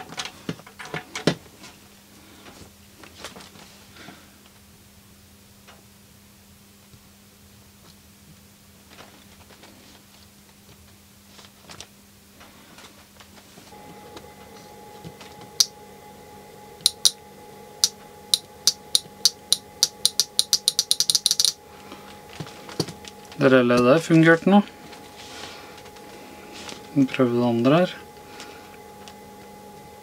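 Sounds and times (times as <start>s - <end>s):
relay clicking: 18.4s - 21.6s.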